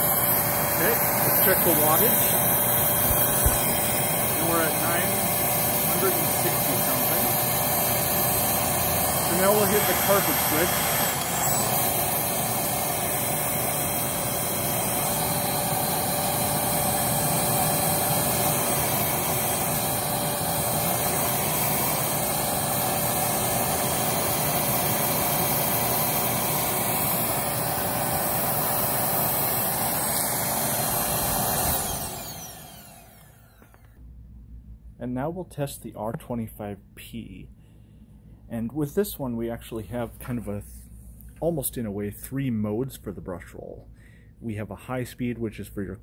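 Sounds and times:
upright vacuum cleaner running: 0.0 - 34.0.

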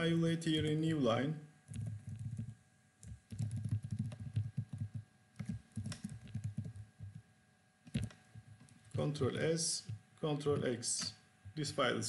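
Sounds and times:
computer keyboard typing: 1.7 - 7.2.

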